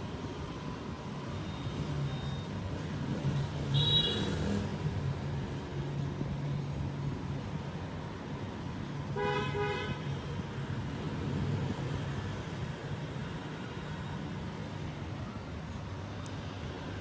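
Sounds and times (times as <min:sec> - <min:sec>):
vehicle engines rumbling: 0:00.0 - 0:17.0
car horn toot: 0:03.7 - 0:04.3.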